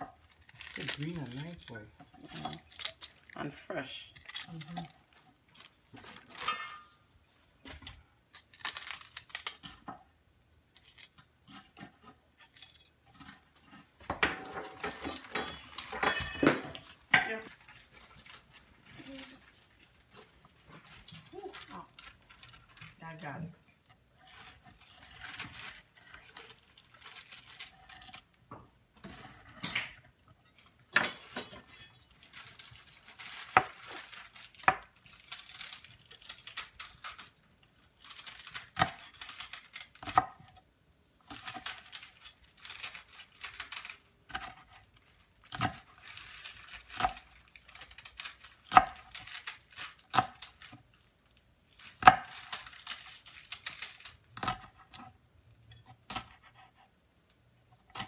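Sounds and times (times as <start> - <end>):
knife slicing pepper: 55.8 - 56.9.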